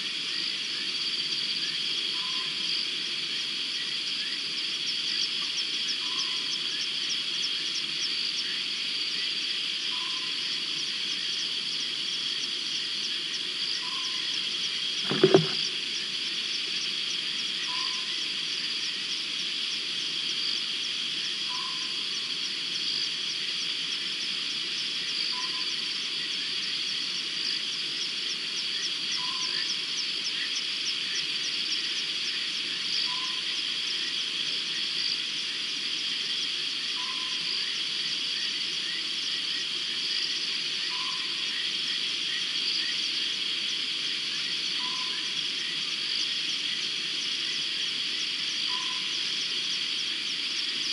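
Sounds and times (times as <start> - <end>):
short low frog call: 15.1 - 15.7.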